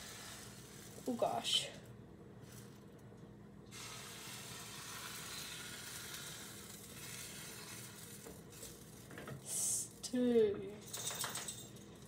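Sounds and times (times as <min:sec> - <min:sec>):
batter sizzling in a hot pan: 0:00.0 - 0:01.8, 0:03.7 - 0:10.4.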